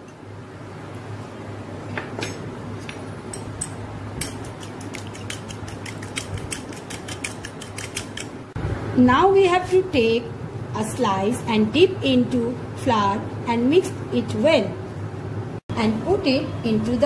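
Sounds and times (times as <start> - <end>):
fork clicking against bowl: 3.3 - 8.3.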